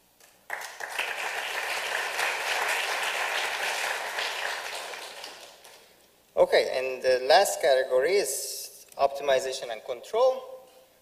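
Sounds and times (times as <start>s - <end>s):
audience applauding: 0.5s - 5.9s.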